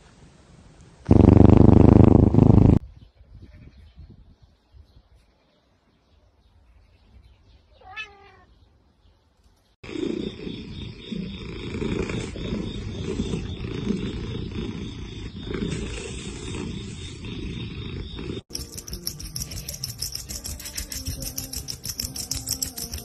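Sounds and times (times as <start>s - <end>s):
cat meowing: 7.8s - 8.5s
low cat vocalizing: 9.8s - 18.4s.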